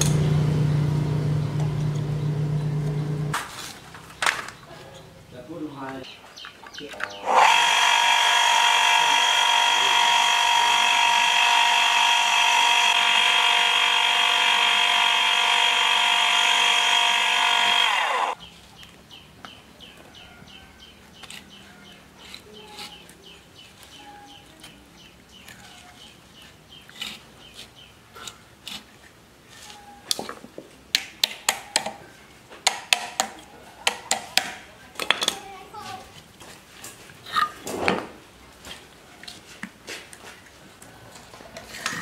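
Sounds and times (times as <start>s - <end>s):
small electric motor whining: 7.2s - 18.4s.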